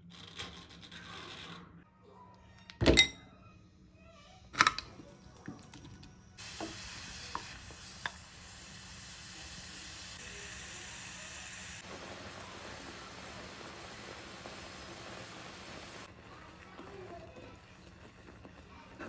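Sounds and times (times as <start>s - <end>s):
fruit syrup simmering in saucepan: 9.6s - 19.0s.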